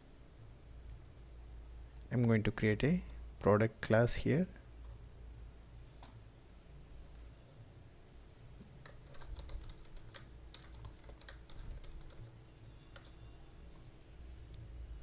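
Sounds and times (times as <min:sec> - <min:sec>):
computer keyboard key clicks: 0:08.8 - 0:12.2.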